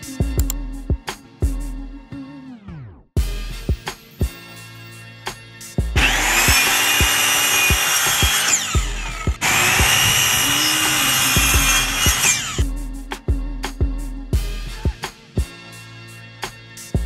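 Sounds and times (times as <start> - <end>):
hip-hop beat: 0.0 - 2.2, 3.2 - 4.4, 5.3 - 17.0
miter saw cutting trim: 6.0 - 12.6.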